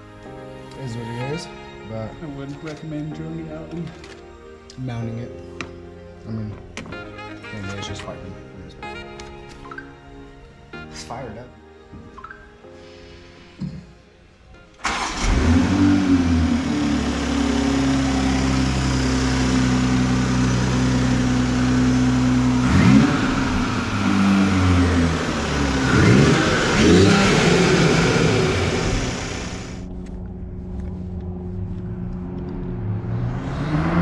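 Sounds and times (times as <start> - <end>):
engine revving: 14.8 - 29.9, 31.1 - 34.0
car engine starting and idling: 14.8 - 34.0.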